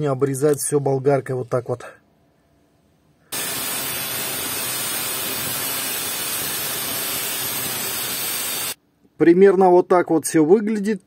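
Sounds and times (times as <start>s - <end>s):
angle grinder cutting metal: 3.4s - 8.8s.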